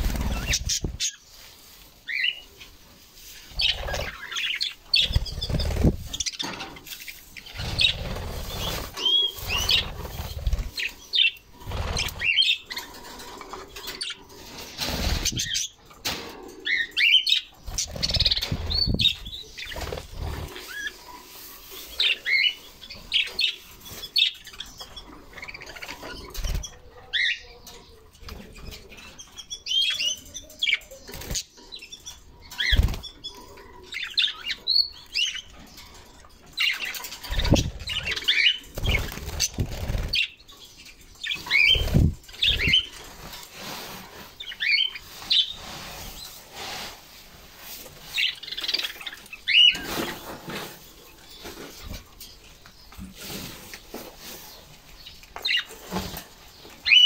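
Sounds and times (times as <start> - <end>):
budgies chirping: 0.0 - 1.4, 2.1 - 16.0, 16.6 - 46.4, 48.0 - 57.0
wing flaps: 4.9 - 6.2, 41.7 - 42.8.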